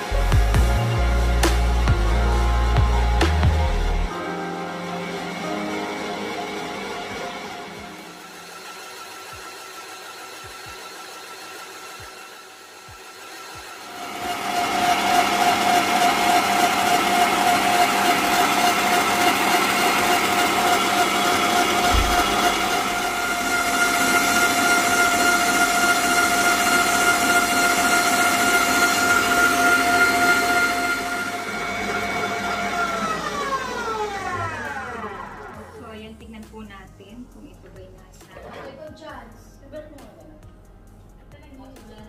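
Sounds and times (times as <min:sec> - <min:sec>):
stand mixer motor whining: 0:00.0 - 0:04.2, 0:04.8 - 0:35.8.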